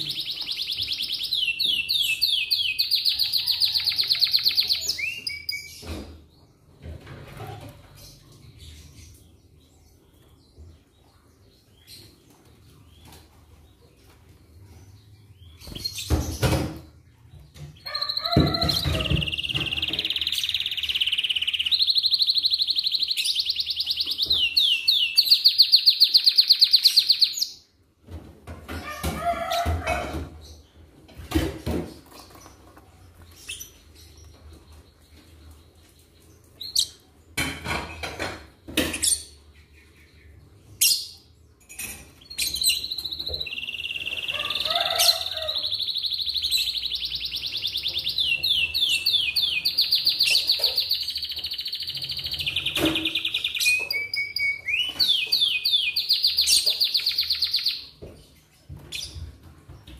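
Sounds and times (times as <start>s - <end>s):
canary singing fast trill: 0.0s - 5.7s, 17.8s - 27.7s, 42.2s - 57.9s.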